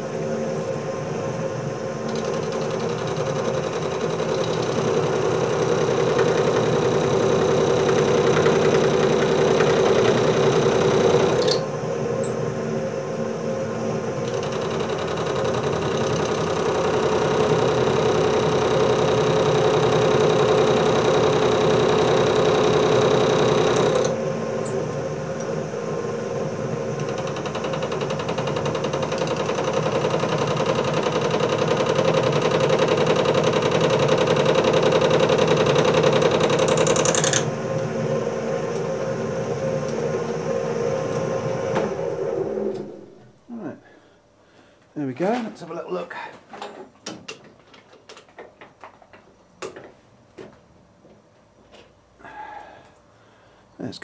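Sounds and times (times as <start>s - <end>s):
metal lathe motor and gear hum: 0.0s - 43.1s.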